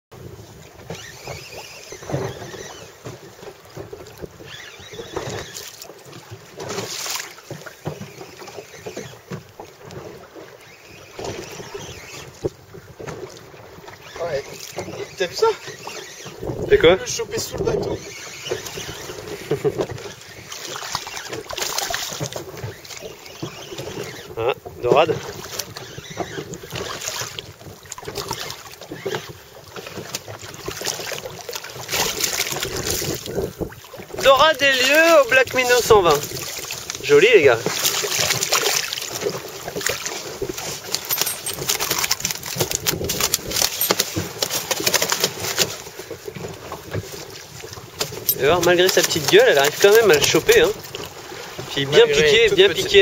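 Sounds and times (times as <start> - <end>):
water splashing against boat: 0.1 - 53.0
fish flapping and slapping: 0.8 - 16.6, 17.6 - 24.3, 25.2 - 51.6
wind buffeting microphone: 14.0 - 20.4, 31.9 - 37.7.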